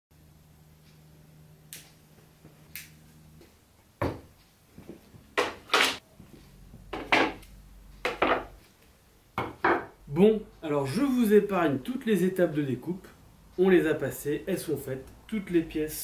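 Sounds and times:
wooden slats knocking on table: 0:08.1 - 0:08.5.

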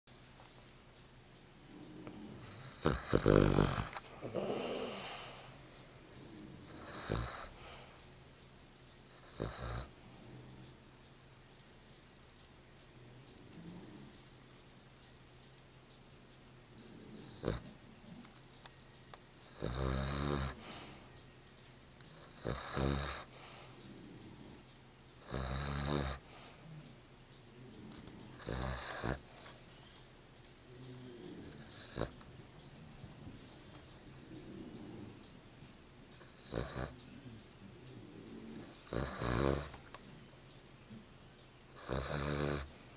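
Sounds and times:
dog snoring: 0:01.6 - 0:08.1, 0:09.1 - 0:10.7, 0:13.3 - 0:14.2, 0:16.8 - 0:18.4, 0:19.4 - 0:21.1, 0:22.1 - 0:26.9, 0:27.6 - 0:29.6, 0:30.7 - 0:32.3, 0:33.5 - 0:35.2, 0:36.1 - 0:39.9, 0:41.7 - 0:42.9
long hissing breath: 0:02.0 - 0:05.6, 0:07.1 - 0:08.1, 0:20.5 - 0:21.1, 0:23.3 - 0:24.4, 0:26.2 - 0:26.8.

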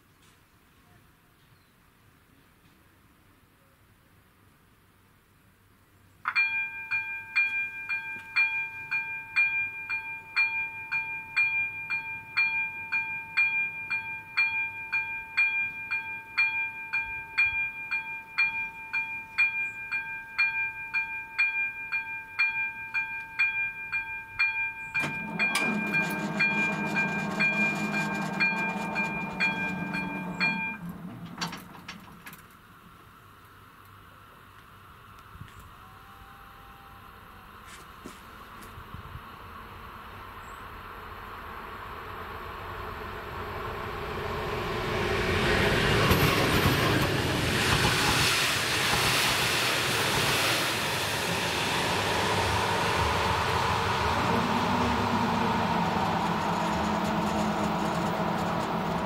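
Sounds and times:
level crossing bell dinging: 0:06.3 - 0:31.0
train passing: 0:06.3 - 0:35.1, 0:37.1 - 0:59.0.

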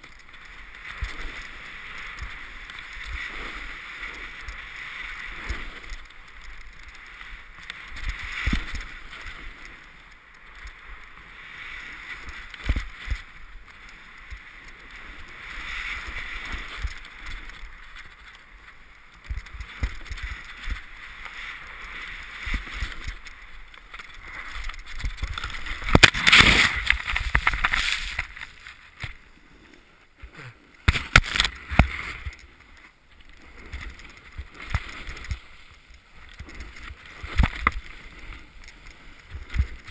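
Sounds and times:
ski edges scraping snow: 0:00.0 - 0:39.9.

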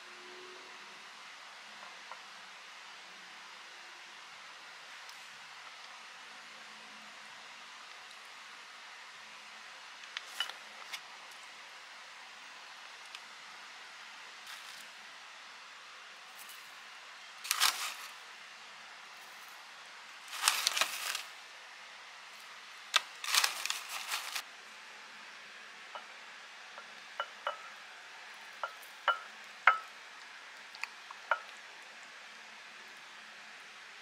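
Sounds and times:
packet rustling: 0:17.4 - 0:18.2, 0:20.2 - 0:21.4, 0:22.9 - 0:24.4
utensils clinking on ceramic bowl: 0:28.6 - 0:29.9.

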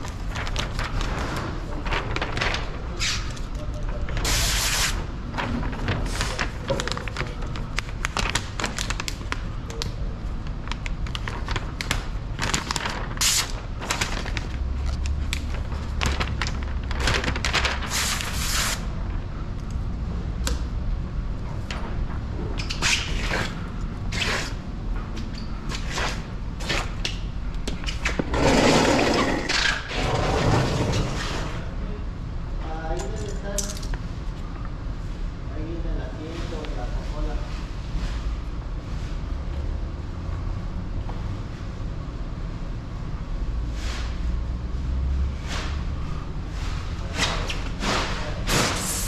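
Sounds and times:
plastic film crinkling: 0:00.0 - 0:04.4, 0:05.4 - 0:18.8
steady low hum: 0:00.0 - 0:49.0.

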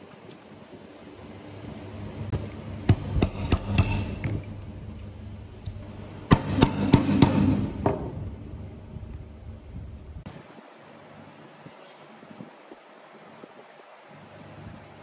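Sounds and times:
mallet knocking on chisel: 0:02.9 - 0:04.3, 0:06.3 - 0:08.1.

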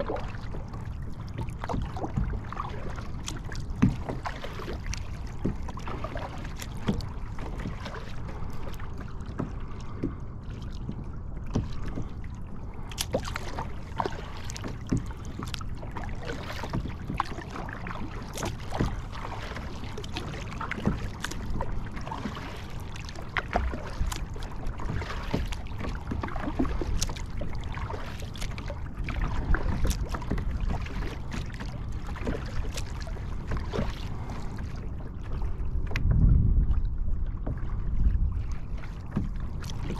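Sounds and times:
water lapping against kayak hull: 0:00.0 - 0:39.9
low rumble: 0:28.6 - 0:39.8.

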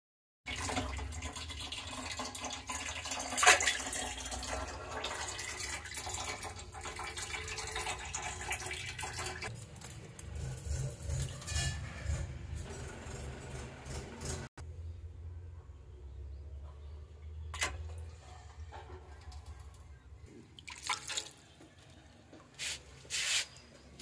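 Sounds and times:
water splashing in plastic tub: 0:00.5 - 0:09.6, 0:20.5 - 0:21.6.

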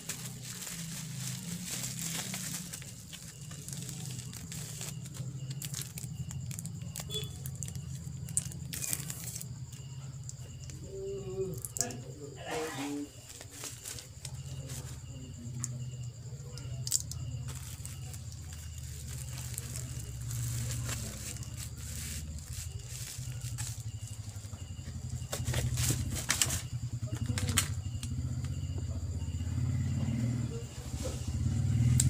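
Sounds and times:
bubble wrap rustling and crinkling: 0:00.0 - 0:09.6, 0:13.1 - 0:15.0, 0:16.9 - 0:26.7.

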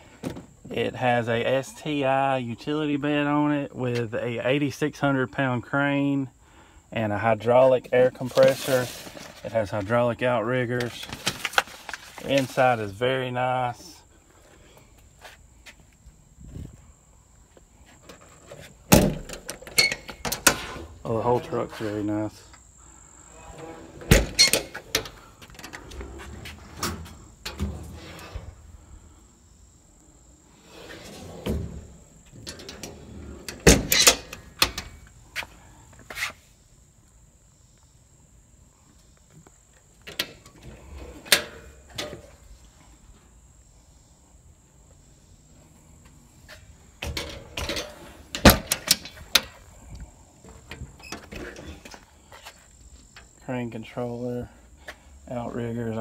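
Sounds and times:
insect chirring: 0:21.9 - 0:53.5
metal doors clunking: 0:31.0 - 0:35.0, 0:47.0 - 0:49.6.

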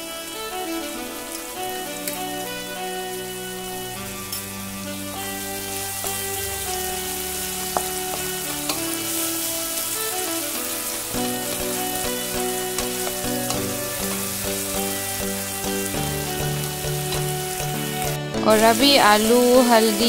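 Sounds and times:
soft background music: 0:00.0 - 0:20.0
vegetables sizzling in hot oil: 0:00.0 - 0:20.0
spatula knocking on pan: 0:07.7 - 0:08.8.

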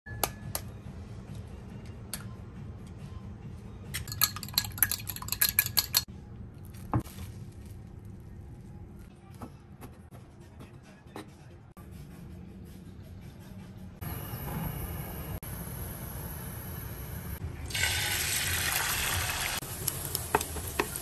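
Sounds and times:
fork clinking on bowl: 0:04.0 - 0:06.1.

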